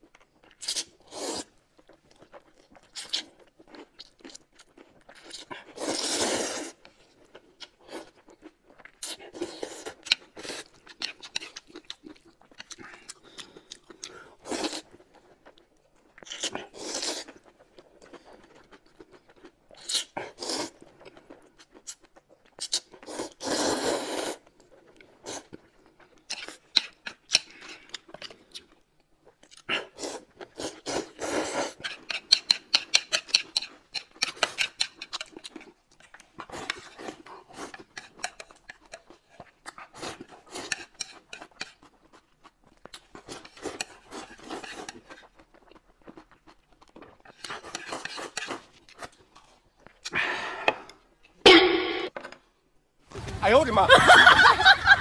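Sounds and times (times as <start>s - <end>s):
noodles slurped: 0.5s - 4.0s, 5.1s - 8.2s, 16.2s - 18.6s, 19.8s - 20.9s, 22.6s - 25.6s, 29.6s - 42.2s, 43.0s - 49.4s.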